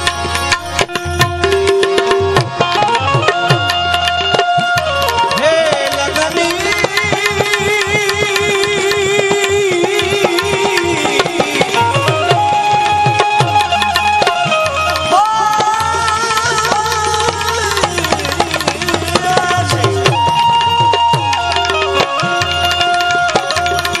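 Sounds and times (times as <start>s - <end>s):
hand drum: 0.0s - 24.0s
harmonium: 0.0s - 24.0s
man singing: 4.3s - 12.7s, 15.0s - 24.0s.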